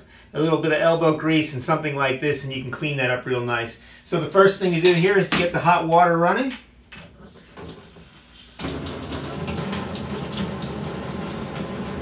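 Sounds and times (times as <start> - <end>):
water running into sink: 7.6 - 12.0
faucet turned on: 8.5 - 12.0.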